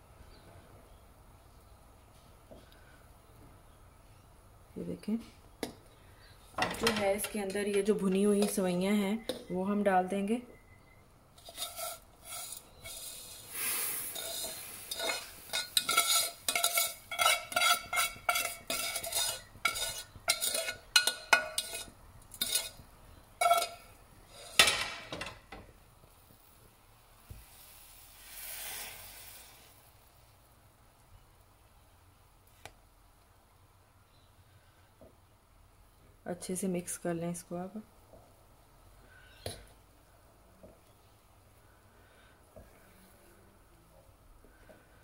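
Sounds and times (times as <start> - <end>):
swish of stirring: 11.4 - 22.8
spatula tapping a pan: 14.9 - 22.7.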